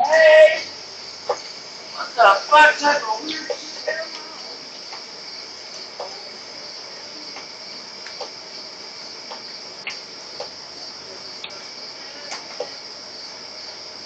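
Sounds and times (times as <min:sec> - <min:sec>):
crickets chirping: 0:00.0 - 0:14.0
faint clicks: 0:07.3 - 0:08.4, 0:09.3 - 0:10.6, 0:12.2 - 0:12.8.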